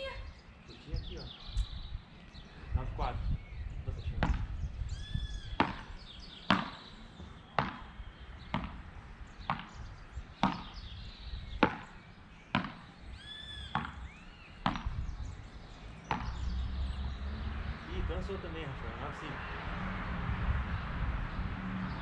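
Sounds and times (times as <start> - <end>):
paddles hitting ball: 4.2 - 4.5, 5.6 - 6.9, 7.5 - 9.8, 10.4 - 10.8, 11.6 - 12.9, 13.7 - 15.0, 16.0 - 16.4.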